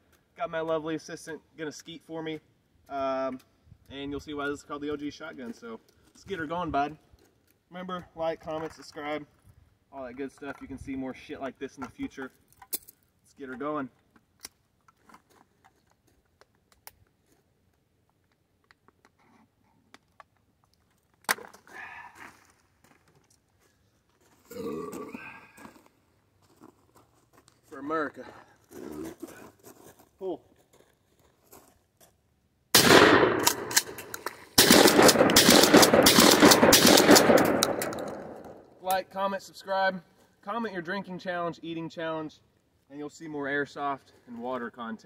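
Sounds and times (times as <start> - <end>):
shotgun blasts with rolling echo: 32.7 - 38.6.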